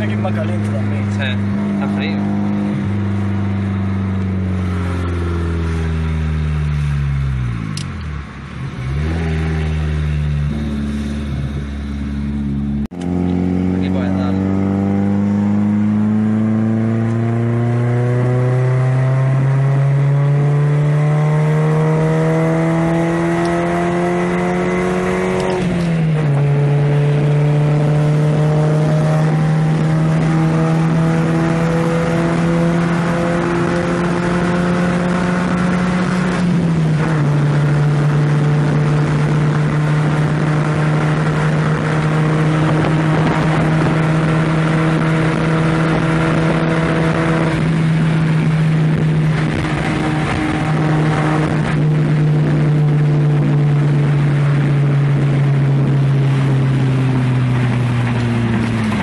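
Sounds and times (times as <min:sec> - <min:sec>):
car engine accelerating: 0:00.0 - 0:59.0.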